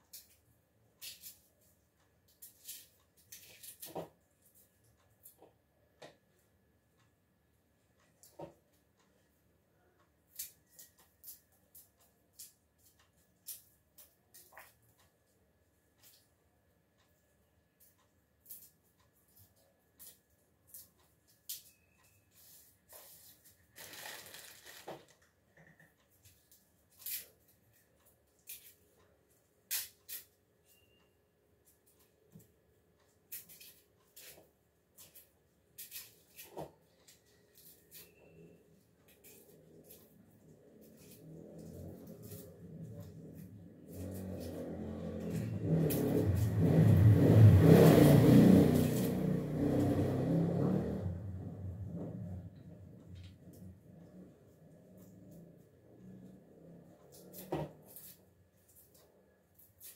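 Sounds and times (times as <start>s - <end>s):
garlic skins crackling and rustling: 23.4s - 25.2s
passing vehicle engine: 40.5s - 57.8s.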